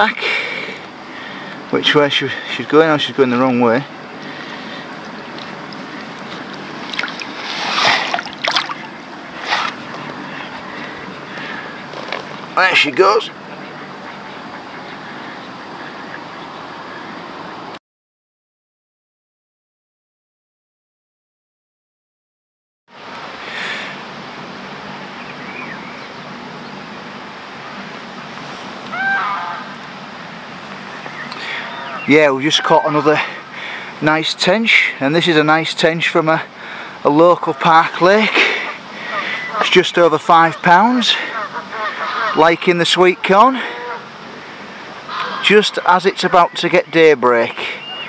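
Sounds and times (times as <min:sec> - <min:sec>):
water lapping at lake edge: 0:00.0 - 0:17.7, 0:23.0 - 0:48.0
wind hiss: 0:00.0 - 0:17.7, 0:37.9 - 0:46.4
water sloshing and splashing: 0:03.9 - 0:15.1.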